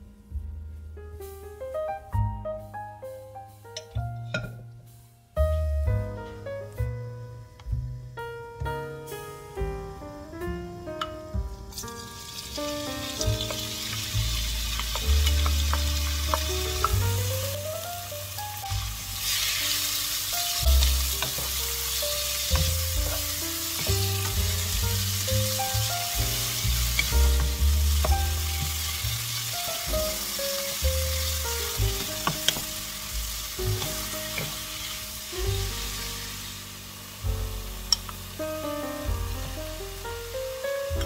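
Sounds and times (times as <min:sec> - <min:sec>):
background music with bass: 0:00.0 - 0:41.0
food sizzling in oil: 0:11.3 - 0:41.0.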